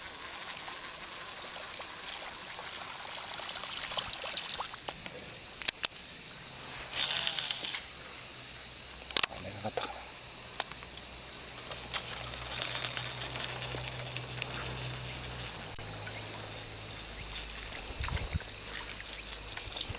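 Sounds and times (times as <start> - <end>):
high-pitched insect chorus: 0.0 - 19.9.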